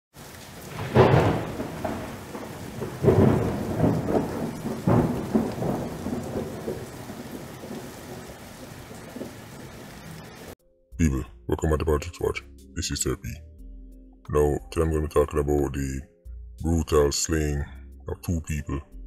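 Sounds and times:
rain hiss: 0:00.2 - 0:10.6
thunder claps: 0:00.2 - 0:10.6.

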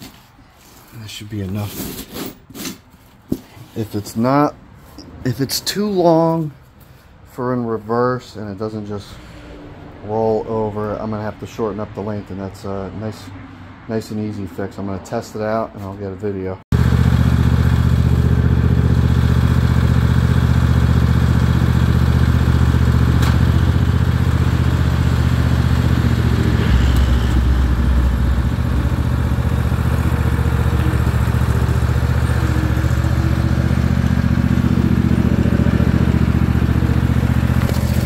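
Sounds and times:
mower engine running: 0:16.7 - 0:38.0.

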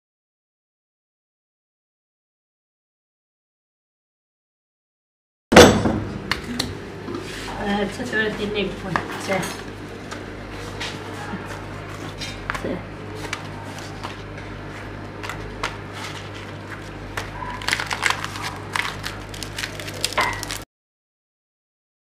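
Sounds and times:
dry flatbread crackling: 0:11.5 - 0:20.6.

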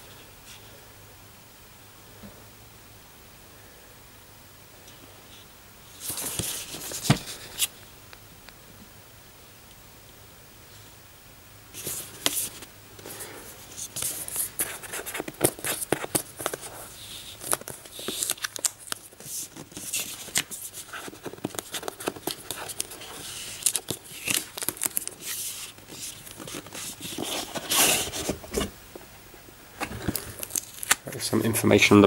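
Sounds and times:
fingers handling cardboard box: 0:13.8 - 0:28.7.

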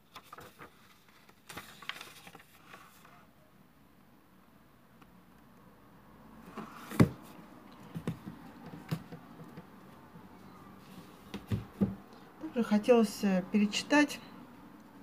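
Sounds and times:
books knocking on wooden table: 0:06.6 - 0:09.8, 0:11.2 - 0:12.0.

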